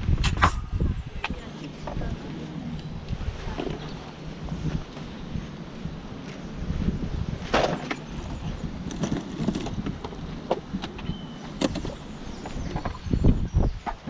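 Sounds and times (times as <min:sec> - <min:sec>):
wind rumble on microphone: 0:00.0 - 0:14.0
small items clicking and rustling: 0:07.6 - 0:12.7.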